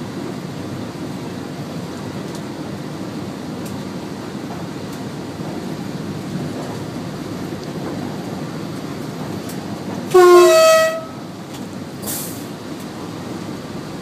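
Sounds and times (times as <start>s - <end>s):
train rumbling on rails: 0.0s - 14.0s
train two-tone horn: 10.1s - 11.3s.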